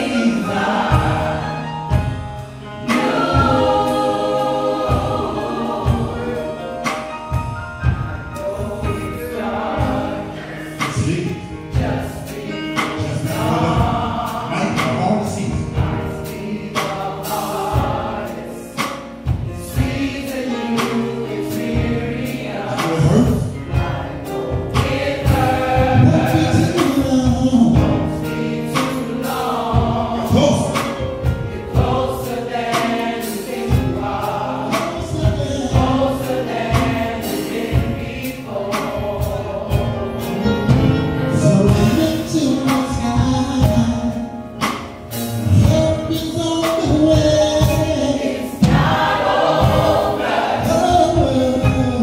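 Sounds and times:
band with steady drum beat: 0:00.0 - 0:52.0
gospel choir singing: 0:00.0 - 0:52.0
man singing lead vocal: 0:26.0 - 0:28.0, 0:41.3 - 0:44.3, 0:45.5 - 0:48.6.

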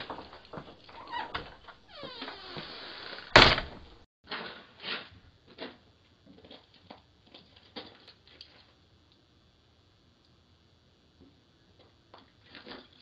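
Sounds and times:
loud thud: 0:03.3 - 0:04.0.

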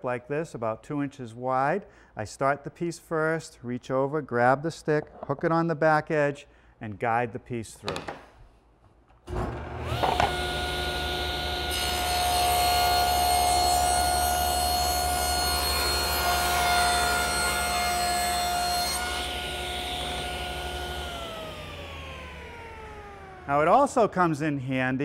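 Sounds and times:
table saw motor whine: 0:09.3 - 0:23.8
saw blade ripping board: 0:09.8 - 0:10.6.

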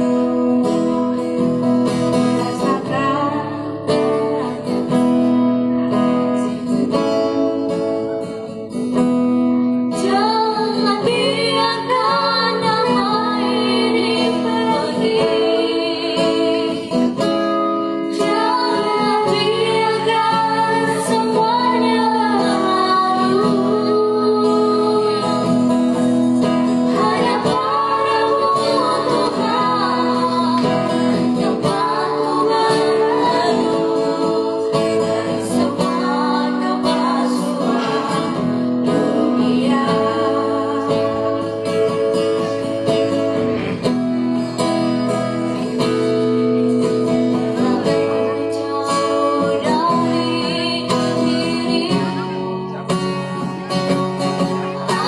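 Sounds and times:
acoustic guitar playing: 0:00.0 - 0:55.0
vocal duet singing: 0:01.9 - 0:05.1, 0:09.9 - 0:43.1, 0:47.3 - 0:52.5, 0:54.6 - 0:55.0.

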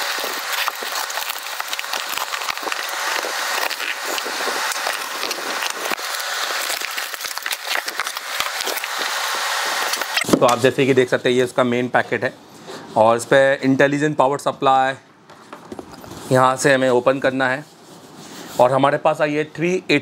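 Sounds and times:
cardboard crackling and rustling: 0:00.0 - 0:09.3
packing tape ripping: 0:00.0 - 0:10.6.

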